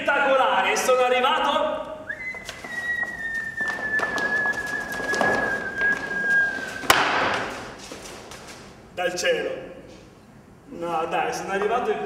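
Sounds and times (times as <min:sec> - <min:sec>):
long whistled note: 0:02.1 - 0:07.0
sharp crack: 0:06.8 - 0:07.8.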